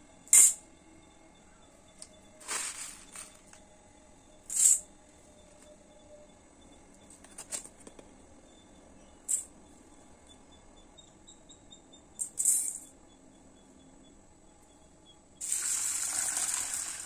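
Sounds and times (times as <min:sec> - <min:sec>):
seeds rattling into steel bowl: 0:02.4 - 0:03.6, 0:04.5 - 0:04.8.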